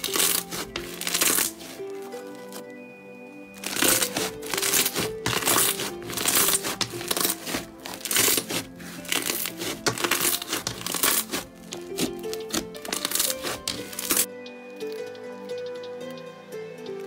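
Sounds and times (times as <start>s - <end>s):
slime crackling and popping: 0.0s - 1.8s, 3.6s - 14.3s
background music: 0.0s - 17.0s.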